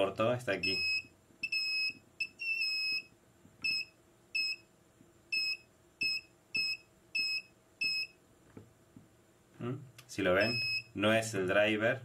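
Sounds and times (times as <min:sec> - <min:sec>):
short high-pitched beeps: 0:00.6 - 0:04.7, 0:05.3 - 0:08.2, 0:10.4 - 0:10.9.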